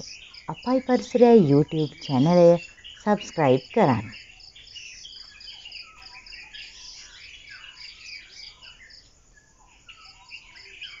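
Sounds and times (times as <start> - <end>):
birds chirping: 0.0 - 11.0
insect chirping rapidly: 0.0 - 11.0.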